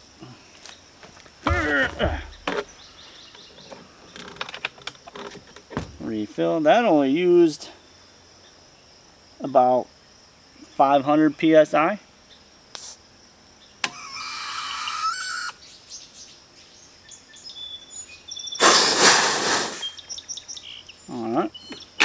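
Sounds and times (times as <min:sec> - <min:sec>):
birds chirping: 0:00.6 - 0:08.8, 0:13.5 - 0:22.0
compressed air hiss with whistle: 0:12.8 - 0:13.0, 0:18.5 - 0:20.2
short rush of air: 0:18.6 - 0:20.0.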